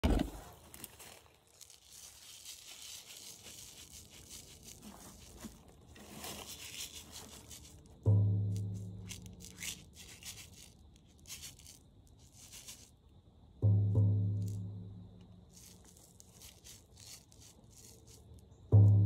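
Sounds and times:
rustling and handling noise: 0.0 - 13.0, 14.1 - 19.0
hand drum boom: 8.1 - 9.4, 13.6 - 15.3, 18.8 - 19.0.

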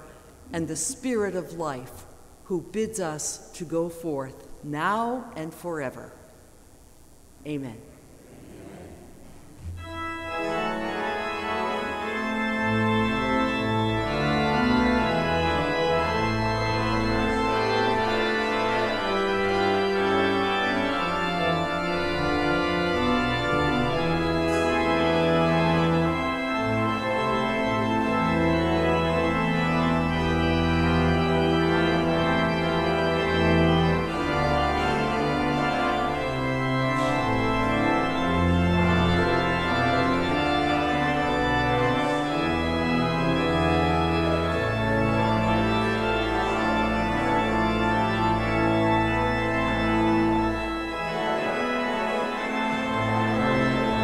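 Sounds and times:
church organ chords: 0.0 - 54.0.

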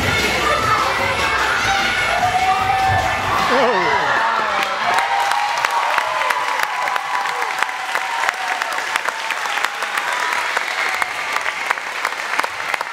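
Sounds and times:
people cheering: 0.0 - 12.9
audience applauding: 3.4 - 12.9.

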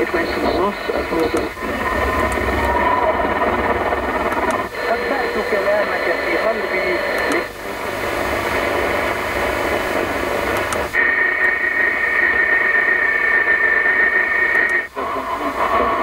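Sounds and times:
radio static hiss: 0.0 - 16.0
steady high whistle: 1.5 - 4.7.

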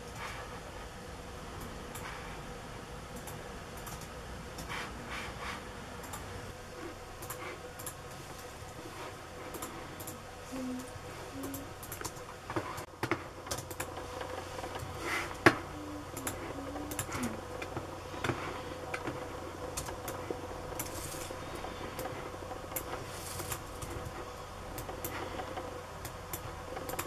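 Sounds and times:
faint steady hum: 0.0 - 27.0
keyboard and mouse clicks: 3.2 - 4.7, 9.5 - 19.2, 24.8 - 27.0.

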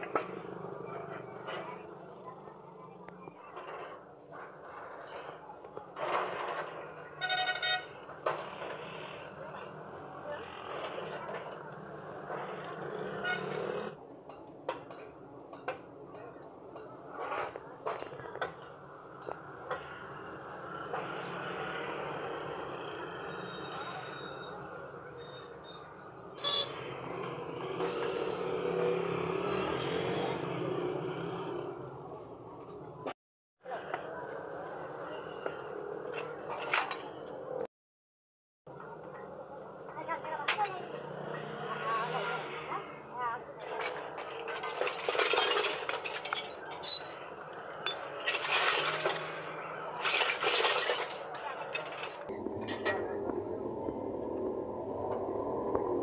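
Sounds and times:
engine running: 52.3 - 56.0.

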